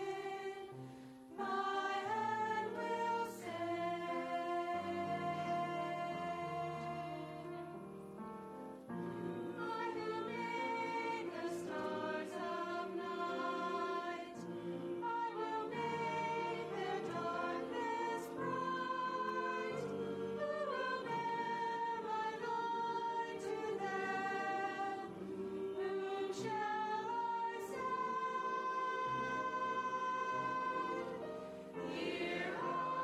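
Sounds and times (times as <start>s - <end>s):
church choir singing held notes: 0.0s - 33.0s.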